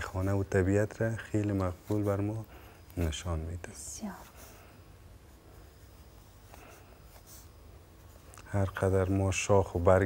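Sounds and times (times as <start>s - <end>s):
low room hum: 0.0s - 10.0s
pencil scratching on paper: 5.3s - 9.1s.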